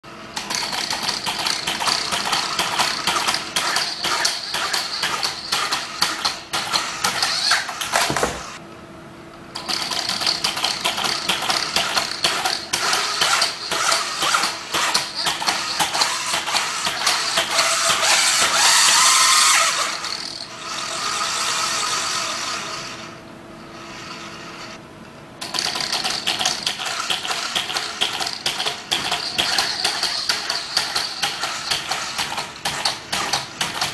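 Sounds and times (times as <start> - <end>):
robot hopping clatter: 0.4 - 8.6, 9.6 - 19.7, 25.4 - 33.9.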